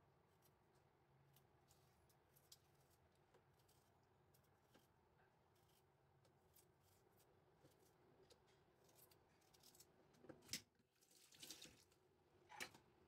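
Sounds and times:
knife scraping potato: 0.3 - 9.9.

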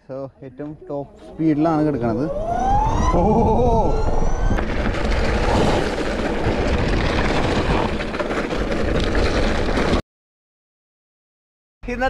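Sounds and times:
mountain bike tyre rumble: 1.2 - 10.0
wind rushing over microphone: 1.4 - 9.8.

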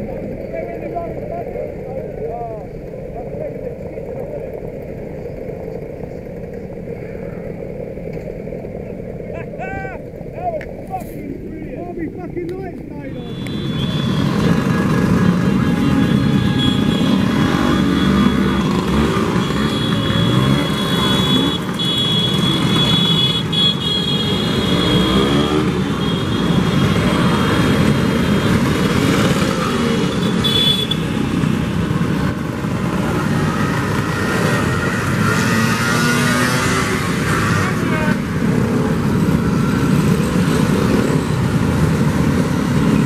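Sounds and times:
scooters riding past: 13.3 - 43.0.

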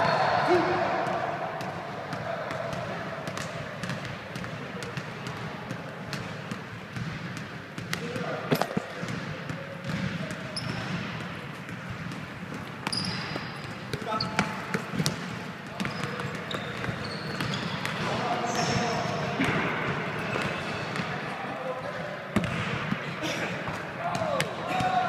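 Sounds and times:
players talking: 0.0 - 6.2, 12.9 - 25.0
basketball bouncing on wooden court: 1.0 - 21.2, 22.4 - 25.0.

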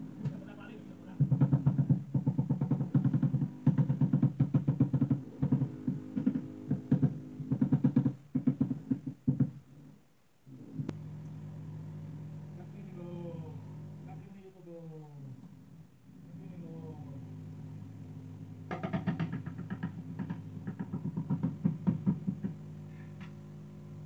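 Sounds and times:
steady low hum: 9.7 - 24.0.

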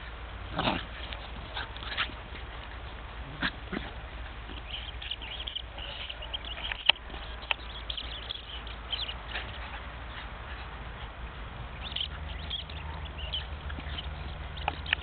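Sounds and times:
puppies yapping: 0.0 - 15.0
faint high chirping: 4.4 - 9.8, 11.8 - 15.0.

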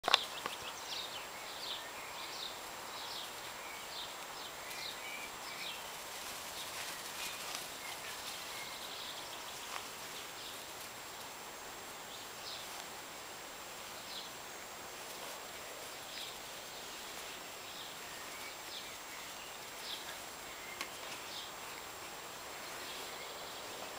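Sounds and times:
outdoor background hiss: 0.0 - 23.9.

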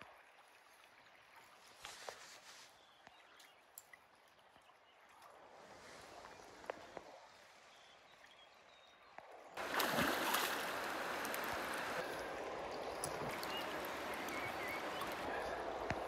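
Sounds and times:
river water rushing: 9.6 - 16.0.

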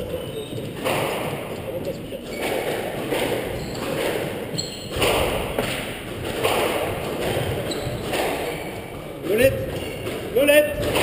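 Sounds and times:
squash ball cracking off rackets: 2.3 - 11.0.

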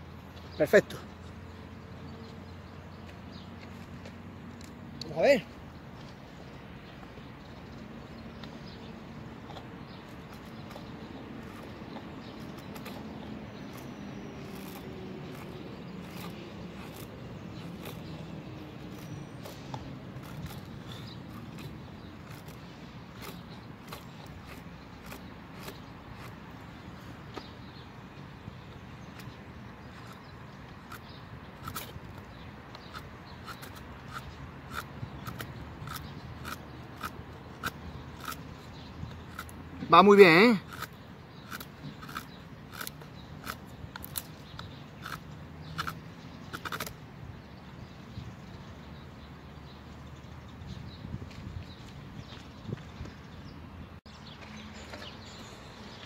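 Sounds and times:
outdoor background noise: 0.0 - 56.0
blade cutting wooden stick: 9.4 - 27.5, 29.1 - 47.0.

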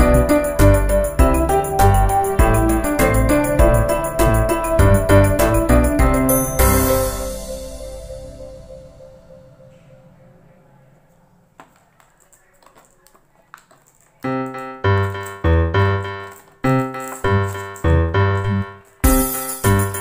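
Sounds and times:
bright jingling: 0.0 - 10.8
keyboard melody: 0.0 - 11.6, 14.2 - 20.0
plastic packaging clicks: 11.6 - 14.3.

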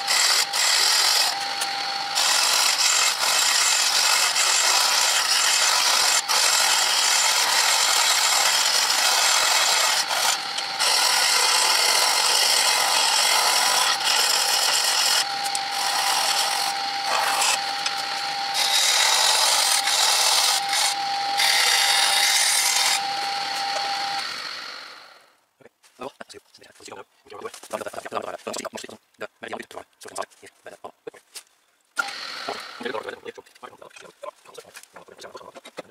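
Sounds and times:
gouge scraping spinning wood: 0.0 - 25.2, 32.0 - 33.1.

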